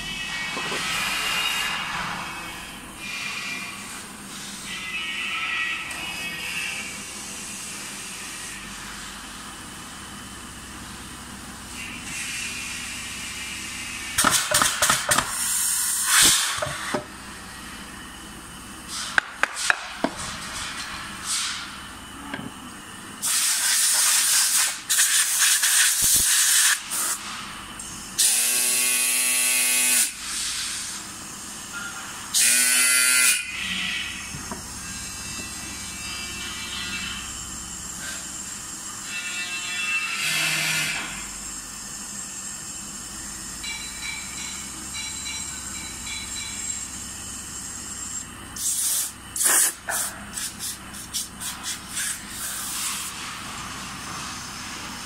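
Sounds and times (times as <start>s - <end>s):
compressed air hissing: 11.8s - 17.0s, 18.9s - 21.9s, 23.2s - 27.5s, 30.0s - 31.2s, 48.6s - 55.0s.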